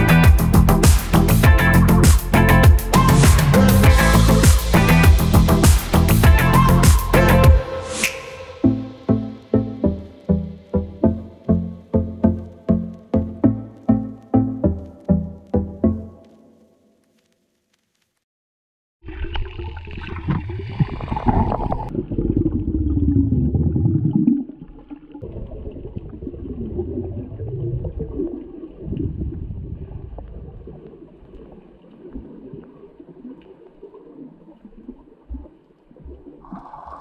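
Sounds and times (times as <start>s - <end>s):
underwater water sloshing: 19.1s - 37.0s.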